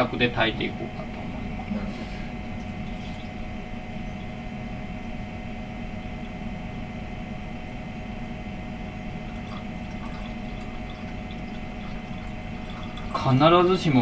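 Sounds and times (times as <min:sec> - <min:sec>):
mechanical hum and hiss: 0:00.0 - 0:14.0
faint held tones: 0:02.2 - 0:07.6.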